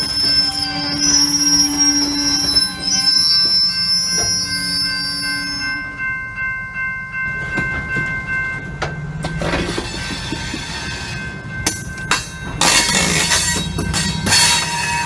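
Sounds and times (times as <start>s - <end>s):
high-pitched wheel squeal: 0.0s - 6.1s
freight train rolling past: 0.0s - 15.0s.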